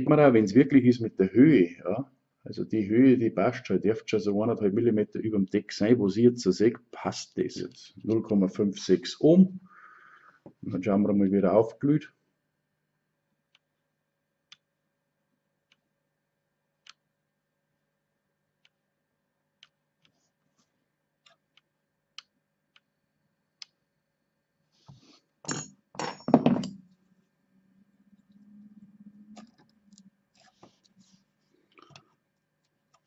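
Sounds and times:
faint low hum: 0:00.0 - 0:33.0
device being handled: 0:29.4 - 0:33.0.

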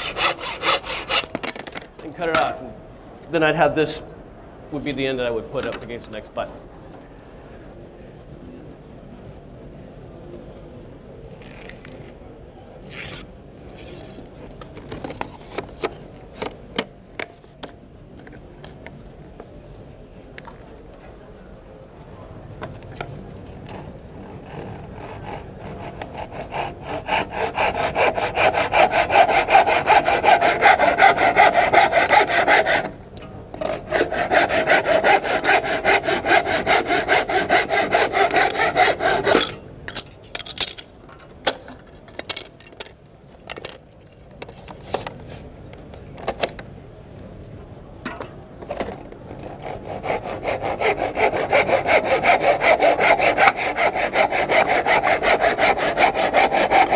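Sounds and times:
hand saw cutting wood: 0:00.0 - 0:01.4, 0:24.3 - 0:33.0, 0:33.6 - 0:39.6, 0:49.4 - 0:56.9.

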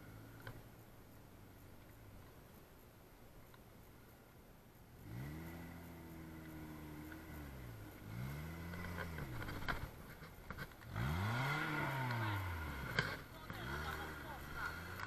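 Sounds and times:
off-road vehicle engine revving: 0:00.0 - 0:00.6, 0:05.0 - 0:15.0.

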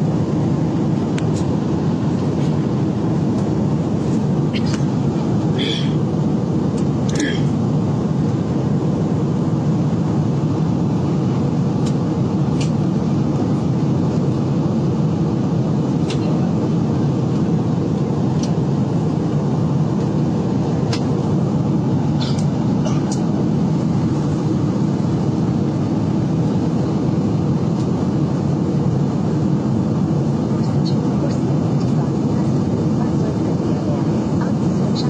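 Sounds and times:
jet engine cabin roar: 0:00.0 - 0:35.0.

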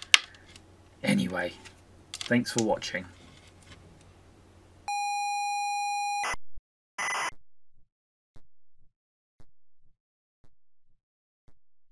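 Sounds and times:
high electronic beep: 0:04.9 - 0:06.4.

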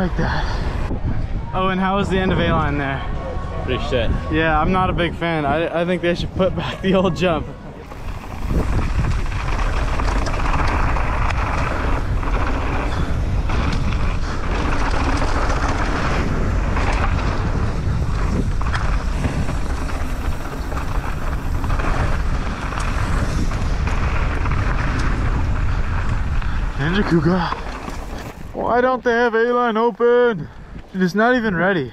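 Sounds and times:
wind rumble on microphone: 0:00.0 - 0:29.7
bike tyres rushing over dirt: 0:00.0 - 0:31.9
bike clicks and rattles: 0:07.9 - 0:28.7.

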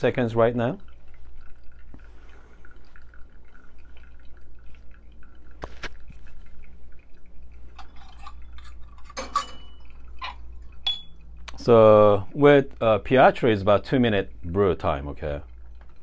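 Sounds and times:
coffee dripping into glass: 0:00.6 - 0:12.2.

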